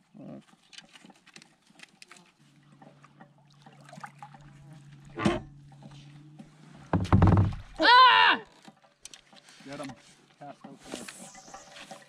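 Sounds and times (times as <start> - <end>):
ticks and knocks on plastic kayak: 5.8 - 7.8.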